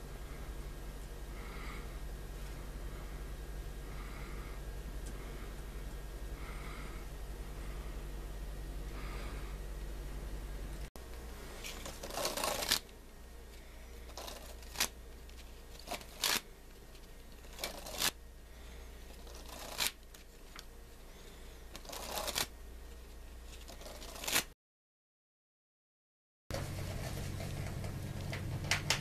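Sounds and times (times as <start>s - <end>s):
low steady hum: 0.0s - 24.5s, 26.5s - 29.0s
playing cards riffling: 11.6s - 12.9s, 14.1s - 18.2s, 19.2s - 20.7s, 21.7s - 22.5s, 23.5s - 24.5s.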